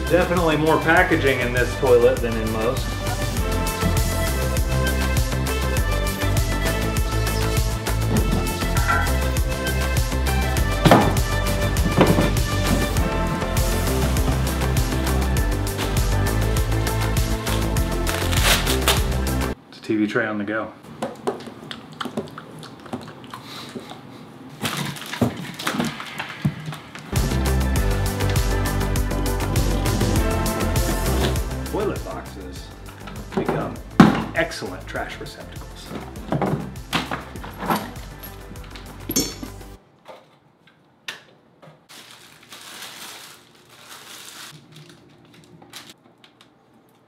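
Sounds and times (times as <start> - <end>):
background music: 0.0 - 19.6, 27.1 - 39.8
plastic toilet seat knocks: 10.8 - 12.8
plastic wrapping crinkling: 17.5 - 19.1, 24.5 - 27.2, 41.8 - 47.0.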